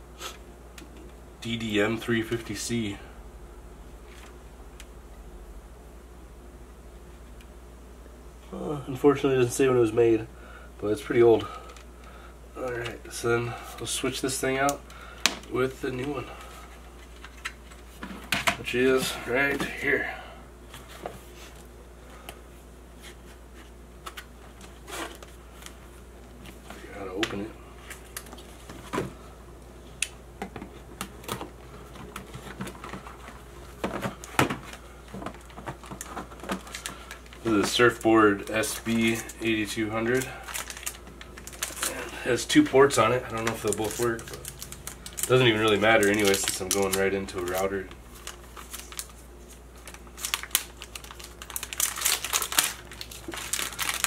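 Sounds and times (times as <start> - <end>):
plastic film crinkling: 31.1 - 54.0.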